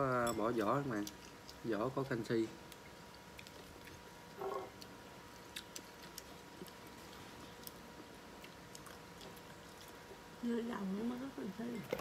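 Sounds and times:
shrimp shell being chewed: 0.6s - 1.7s, 2.6s - 10.3s.

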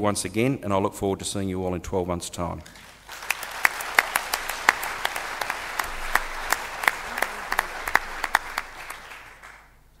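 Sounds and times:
audience applauding: 2.8s - 9.8s.

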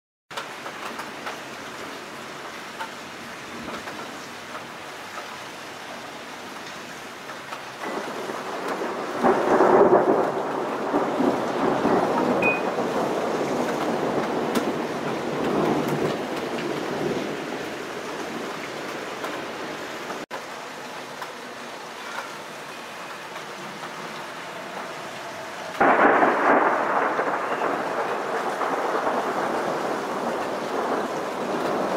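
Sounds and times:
rain hissing: 0.3s - 31.9s
thunder rumbling: 7.8s - 20.2s, 23.3s - 31.9s.

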